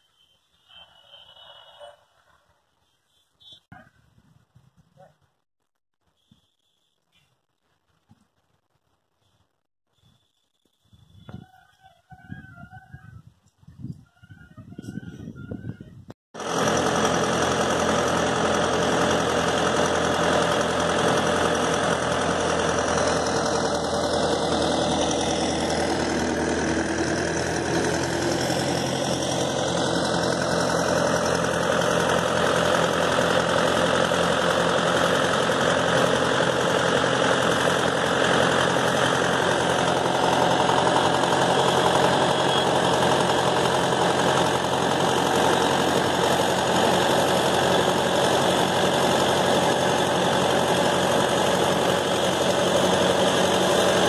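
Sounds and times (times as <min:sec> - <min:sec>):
tractor diesel engine running: 0:14.6 - 0:54.0.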